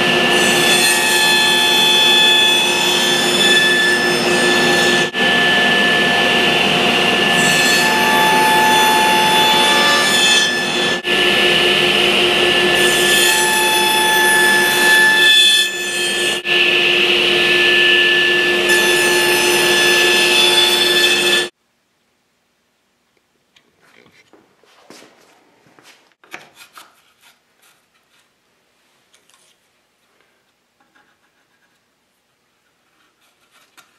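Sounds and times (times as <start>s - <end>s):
power saw cutting wood: 0.0s - 21.5s.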